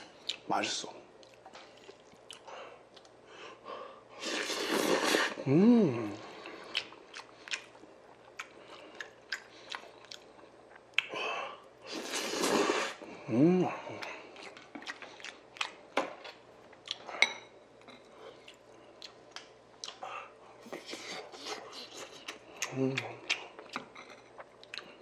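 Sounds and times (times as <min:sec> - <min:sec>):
slurping noodles: 0:04.2 - 0:05.4, 0:11.8 - 0:13.0
person humming: 0:05.3 - 0:06.4, 0:13.2 - 0:14.0, 0:22.6 - 0:23.3
wet chewing: 0:06.4 - 0:11.1, 0:17.8 - 0:20.0.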